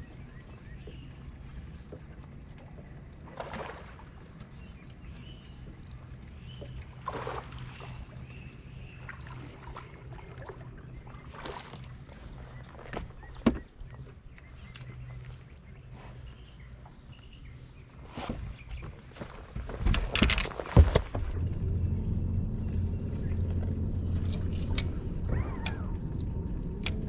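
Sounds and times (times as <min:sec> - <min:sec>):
electric trolling motor hum: 0:21.4 - 0:27.0.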